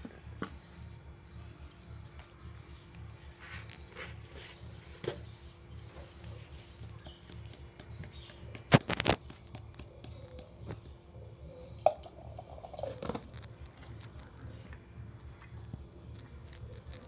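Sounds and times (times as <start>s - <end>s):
steel bowls clinking: 11.7s - 14.2s.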